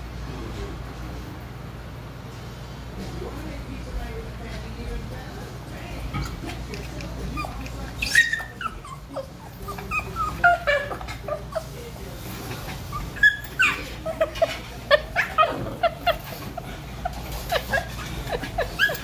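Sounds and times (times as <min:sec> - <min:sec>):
dog whining and yipping: 0:07.3 - 0:11.7, 0:12.9 - 0:14.5, 0:17.3 - 0:19.0.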